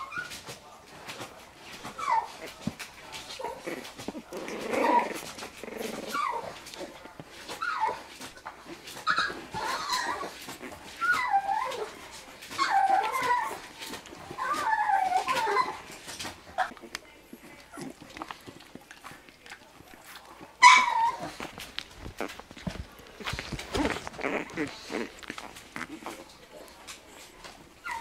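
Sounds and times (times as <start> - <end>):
puppies yipping and whimpering: 1.8 - 2.6, 3.2 - 6.8, 7.4 - 16.8, 20.5 - 21.5, 27.8 - 28.0.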